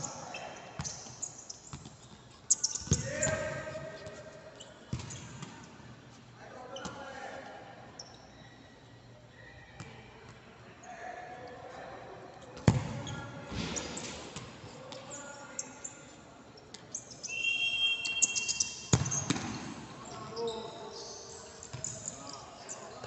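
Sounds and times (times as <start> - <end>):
ball kicked with echoing thud: 12.6 - 14.5, 18.9 - 19.8
high squeak: 16.9 - 19.2.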